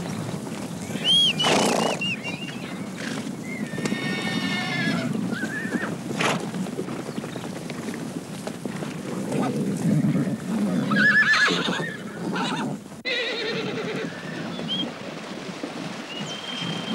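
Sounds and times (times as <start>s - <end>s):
low rumble of hooves: 0.0s - 16.9s
horses whinnying: 0.8s - 7.4s, 8.9s - 15.0s.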